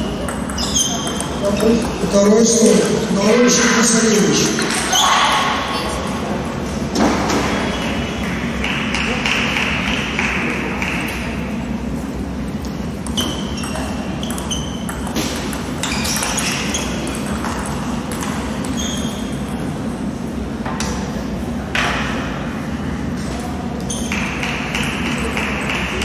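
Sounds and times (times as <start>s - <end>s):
table tennis ball pings: 0.0s - 2.0s, 13.0s - 19.6s.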